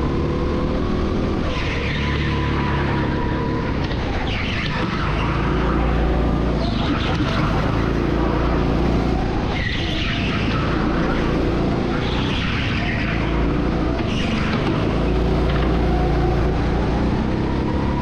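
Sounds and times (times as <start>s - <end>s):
go-kart engine running: 0.0s - 18.0s.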